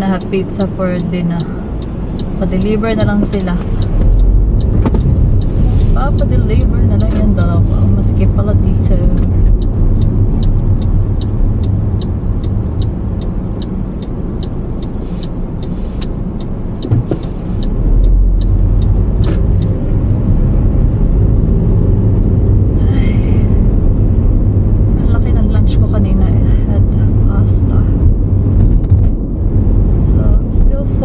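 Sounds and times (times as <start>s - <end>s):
regular ticking: 0.0s - 22.2s
car road and engine rumble: 0.0s - 31.0s.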